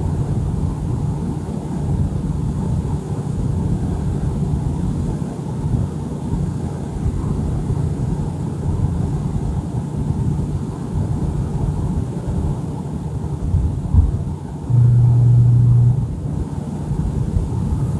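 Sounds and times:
deep low hum: 14.7s - 16.3s.

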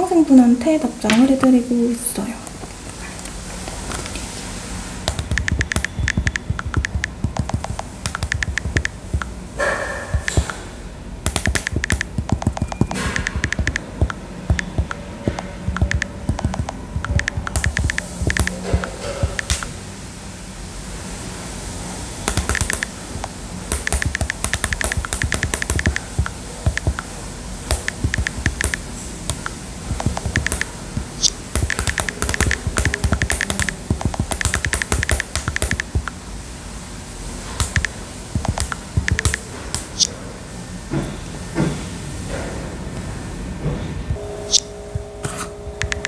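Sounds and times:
fingernails tapping on touchscreen: 5.1s - 9.3s, 10.1s - 10.6s, 11.3s - 19.7s, 22.3s - 27.1s, 27.7s - 36.2s, 37.6s - 40.1s, 44.1s - 46.0s.

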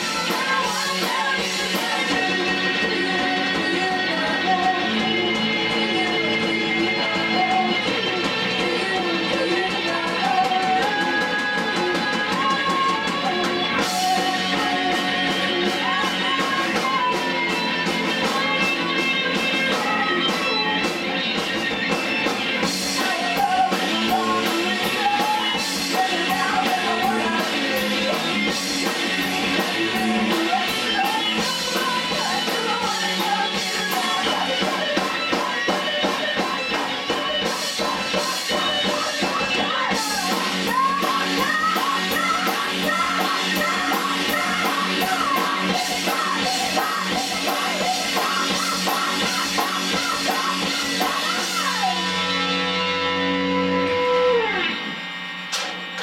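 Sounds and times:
woman singing: 0.0s - 53.0s
rock band playing: 0.0s - 56.0s.

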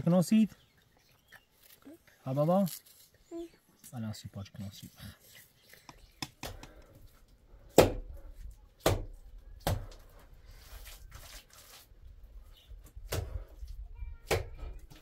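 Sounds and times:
sharp knocks on concrete blocks: 7.7s - 8.1s.

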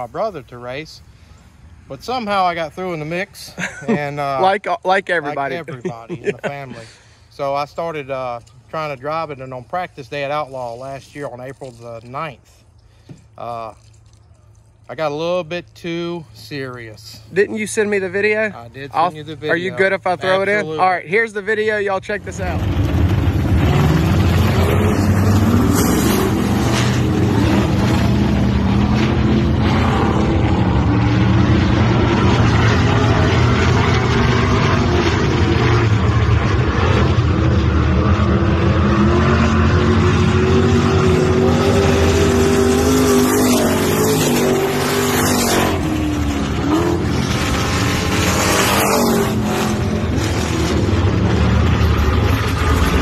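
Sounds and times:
race car engines: 14.9s - 53.0s.

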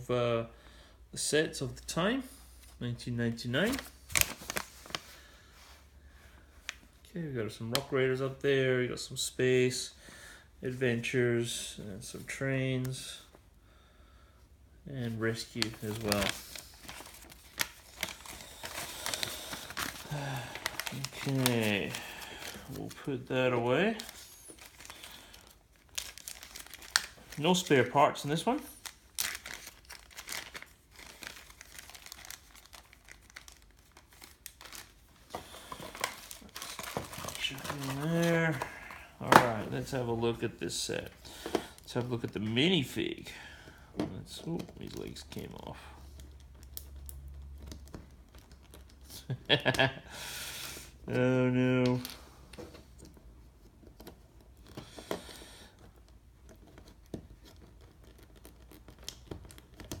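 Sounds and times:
plastic bag crinkling: 3.6s - 5.2s, 15.0s - 43.1s.

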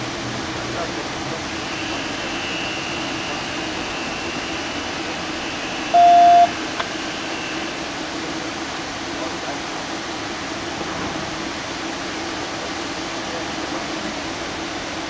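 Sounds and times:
electronic beep: 5.8s - 6.6s.

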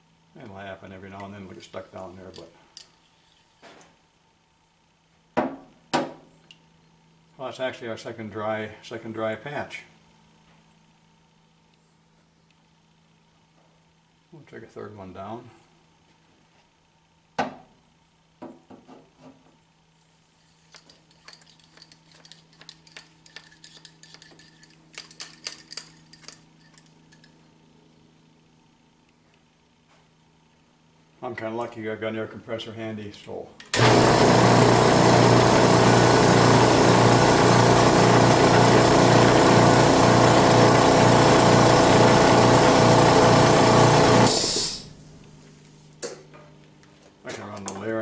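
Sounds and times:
air compressor motor running: 33.7s - 45.9s
air hiss: 44.3s - 45.0s.

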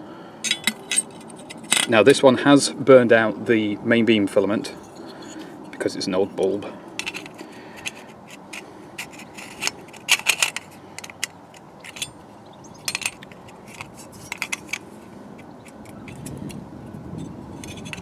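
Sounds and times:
metal clicks rattles and scrapes: 0.4s - 2.1s, 4.7s - 5.9s, 6.9s - 18.0s.

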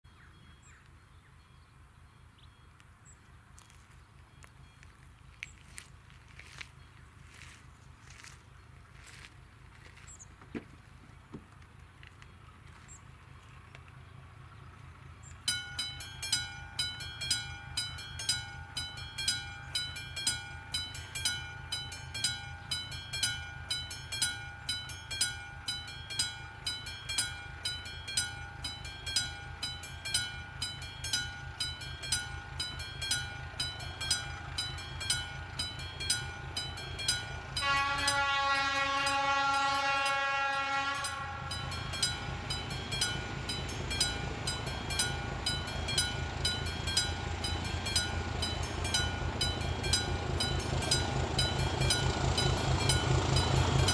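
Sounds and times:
train rumble: 1.7s - 53.9s
level crossing warning bell: 15.2s - 53.9s
train horn blast: 37.1s - 42.5s.

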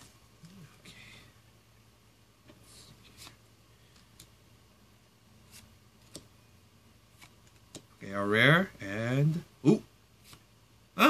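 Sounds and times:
cards sliding ticks: 2.5s - 4.4s.

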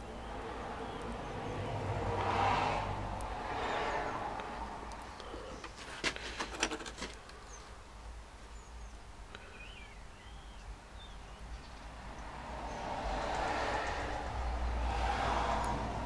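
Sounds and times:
faint bird chirps: 8.5s - 11.8s.

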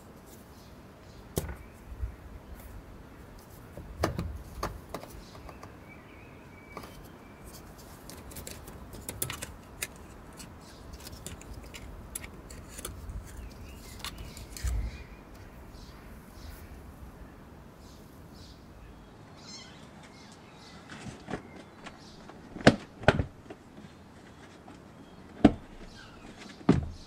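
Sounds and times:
dull handling thumps: 1.3s - 2.0s.

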